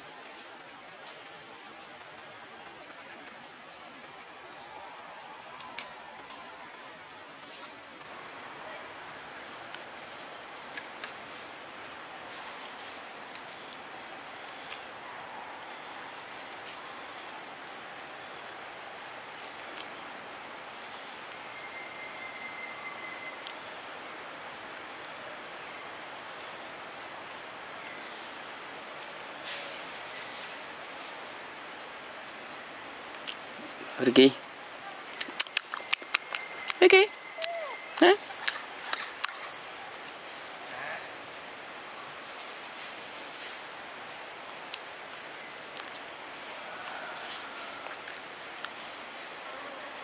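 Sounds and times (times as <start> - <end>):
high insect drone: 0.0 - 50.0
steady hiss: 0.0 - 50.0
faint clicks: 35.1 - 36.8
sharp click or rustle: 35.2 - 36.8.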